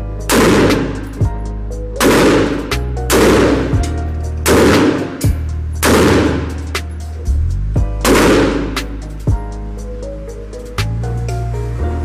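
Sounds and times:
background music with bass line: 0.0 - 12.0
gunshots with echo: 0.3 - 1.2, 2.0 - 7.0, 8.0 - 9.0.

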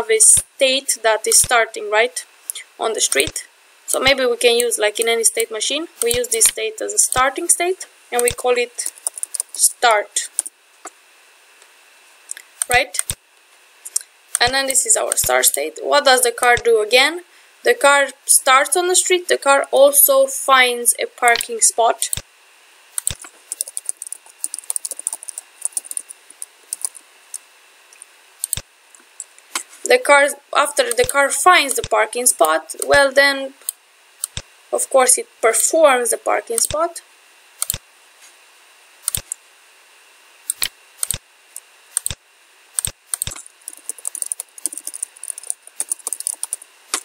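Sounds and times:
computer keyboard typing: 8.2 - 9.6, 23.0 - 27.4, 42.0 - 42.2, 42.8 - 47.0.

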